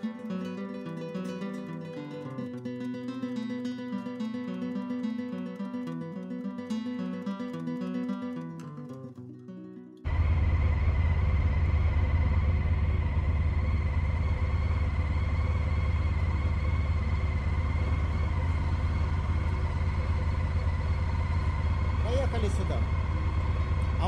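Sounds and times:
faint guitar music: 0.0s - 24.0s
motorcycle engine running: 10.1s - 24.0s.

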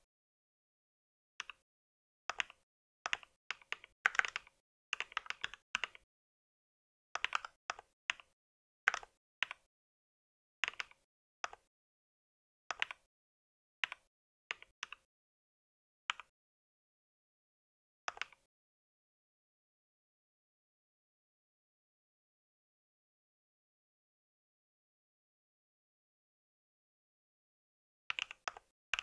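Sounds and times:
mechanical keyboard typing: 2.3s - 6.0s, 7.2s - 8.3s, 8.9s - 9.7s, 10.6s - 11.7s, 12.7s - 13.1s, 18.1s - 18.5s, 28.1s - 29.0s.

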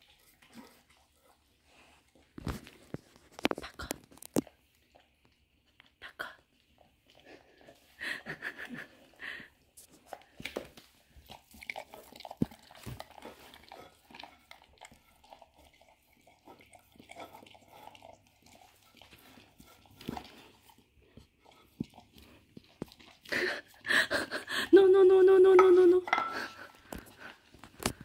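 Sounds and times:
dog licking from a bowl: 10.0s - 23.8s.

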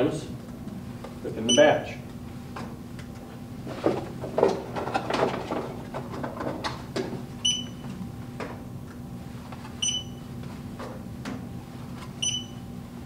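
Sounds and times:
items knocking and clicking: 3.8s - 7.2s
barcode scanner beeps: 7.4s - 7.8s, 9.8s - 10.2s, 12.2s - 12.6s.

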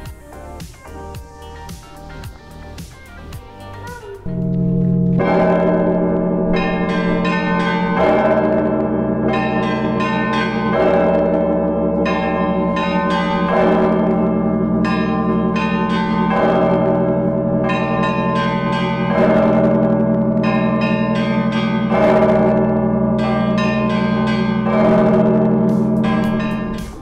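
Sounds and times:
heavy bell struck: 4.2s - 27.0s
smaller higher bells ringing: 4.2s - 27.0s
steady low hum: 4.3s - 8.0s.

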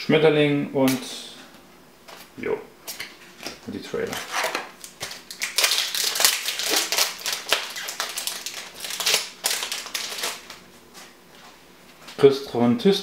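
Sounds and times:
foil wrapper crinkling: 4.0s - 10.6s.

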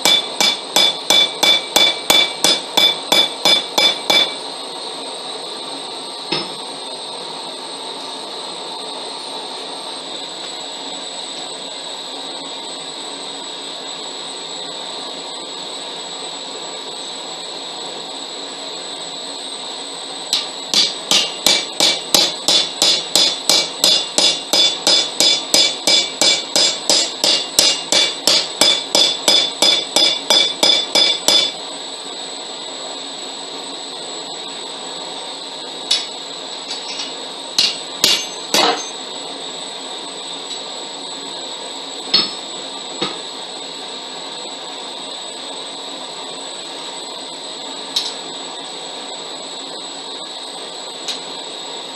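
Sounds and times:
hammer striking steel on anvil: 0.0s - 4.5s, 6.3s - 6.6s, 20.4s - 31.6s, 35.9s - 39.0s, 42.1s - 43.2s
steady mechanical hum: 0.0s - 51.9s.

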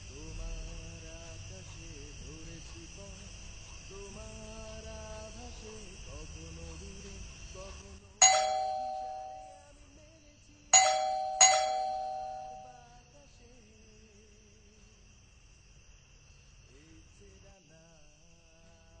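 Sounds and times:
crickets chirring: 0.0s - 19.0s
doorbell-like chime: 8.2s - 9.6s, 10.8s - 12.8s.

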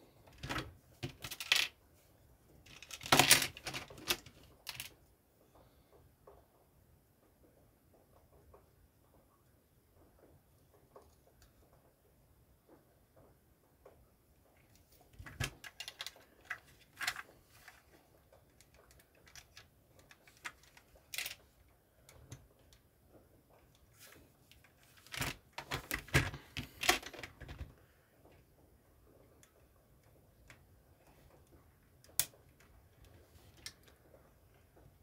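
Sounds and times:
plastic bricks clicking and rattling: 0.3s - 1.8s, 2.6s - 5.0s, 15.2s - 22.8s.

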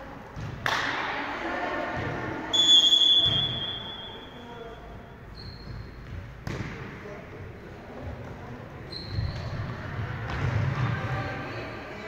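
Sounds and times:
referee's whistle blast: 2.5s - 4.4s
higher whistle tone: 2.5s - 4.6s.

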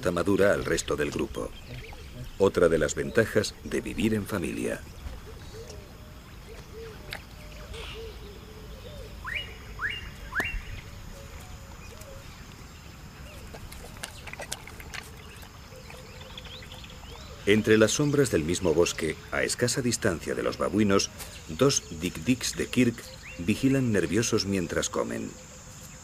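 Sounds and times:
short bird notes: 5.3s - 11.0s
rising whistled bird notes: 6.7s - 10.9s
sharp bird clicks: 9.3s - 10.8s.

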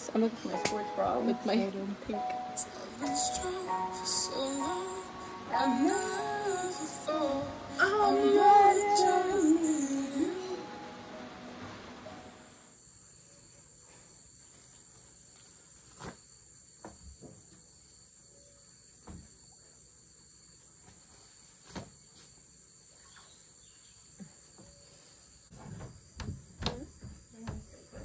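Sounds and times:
insect chorus drone: 0.0s - 28.0s
short knocks and bumps: 25.5s - 28.0s.

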